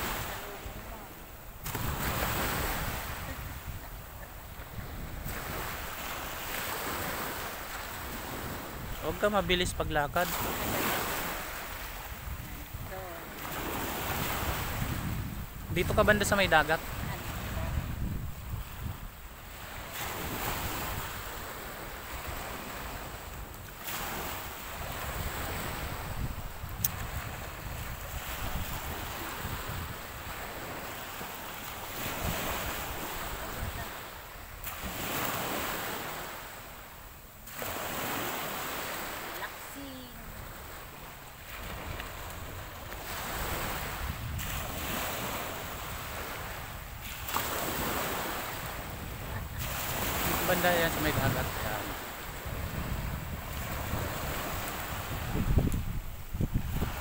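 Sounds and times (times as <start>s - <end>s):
wind rumbling on microphone: 0.0s - 30.9s, 31.8s - 35.6s, 41.5s - 57.0s
small waves washing ashore: 0.0s - 57.0s.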